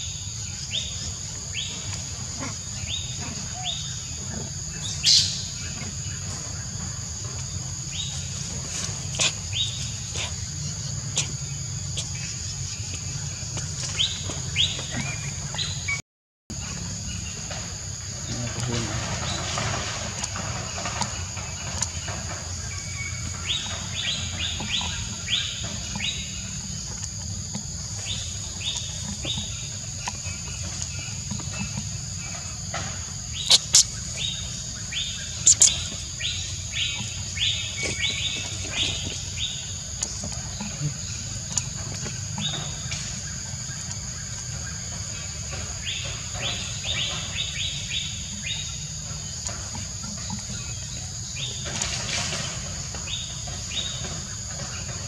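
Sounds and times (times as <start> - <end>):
high insect drone: 0.0 - 15.9, 16.5 - 55.0
quick repeated chirps: 35.4 - 35.8.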